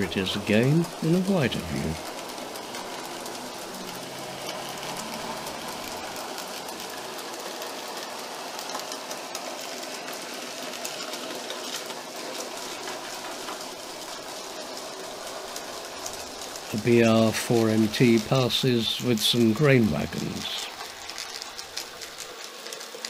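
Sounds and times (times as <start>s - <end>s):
model train motor whirring: 0.0s - 23.0s
wheels rattling over rails: 0.0s - 23.0s.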